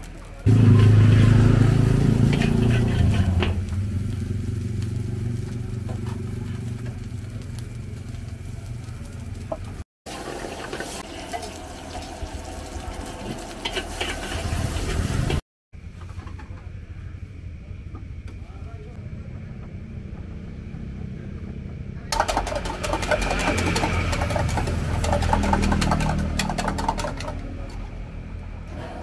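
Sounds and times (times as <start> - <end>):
food sizzling in a wok: 0.0 - 15.4
metal spatula scraping a wok: 0.7 - 3.6, 13.6 - 15.4, 22.6 - 27.4.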